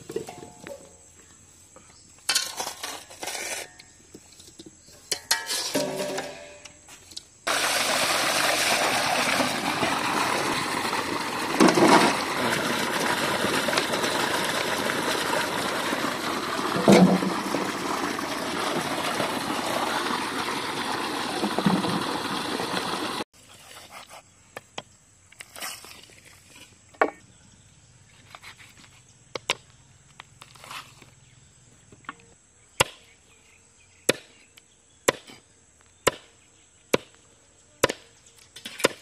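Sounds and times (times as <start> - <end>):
water rushing in a basin: 7.5 - 23.3
water splashes: 7.5 - 23.3.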